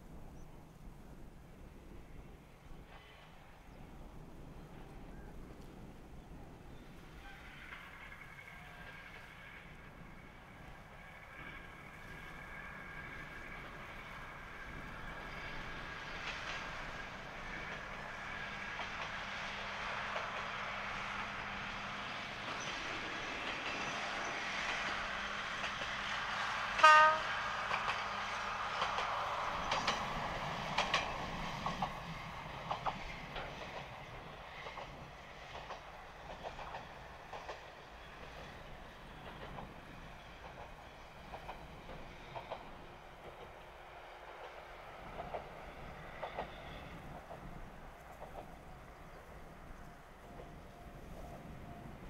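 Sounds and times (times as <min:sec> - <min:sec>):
diesel train running: 0:02.3 - 0:52.0
train horn blast: 0:26.7 - 0:27.6
wheels clicking over rail joints: 0:27.0 - 0:49.8.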